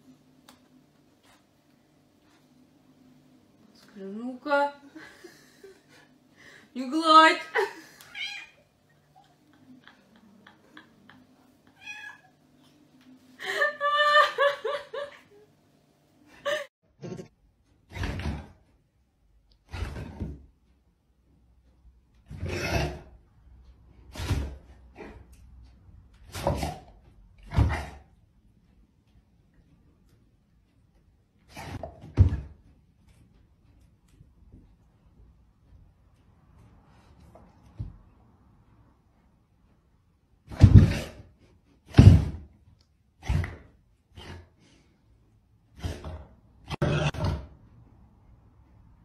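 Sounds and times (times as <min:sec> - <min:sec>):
dog and cat play-fighting: 0:24.0 - 0:28.2, 0:29.4 - 0:38.3, 0:40.4 - 0:47.8.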